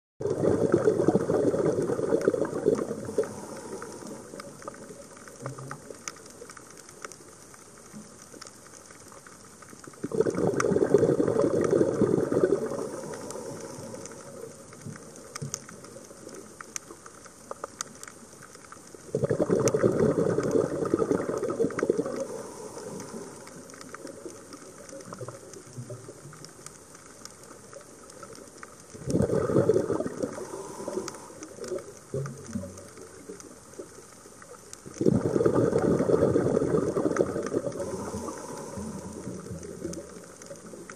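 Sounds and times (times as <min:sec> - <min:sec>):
scuba regulator bubbles bursting: 0:00.2 - 0:06.0, 0:09.9 - 0:16.0, 0:19.1 - 0:26.3, 0:28.9 - 0:33.5, 0:34.8 - 0:40.9
faint scattered clicks: 0:00.9 - 0:40.9.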